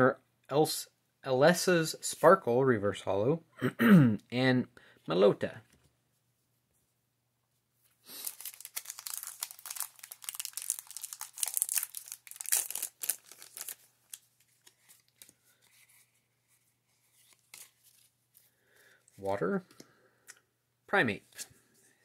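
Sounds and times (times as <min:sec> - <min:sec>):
foil wrapper crinkling: 0:08.1 - 0:15.4.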